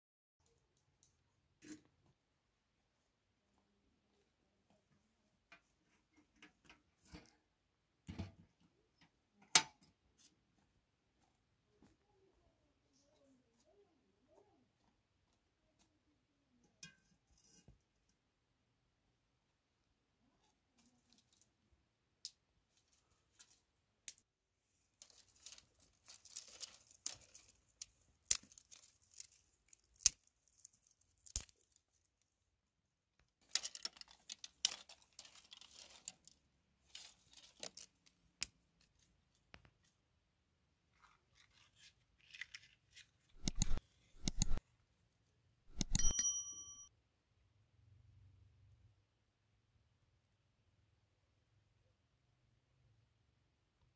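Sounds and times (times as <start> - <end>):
twigs snapping and crackling: 25.0 - 31.8, 33.4 - 38.5
short metallic ring: 45.8 - 46.9.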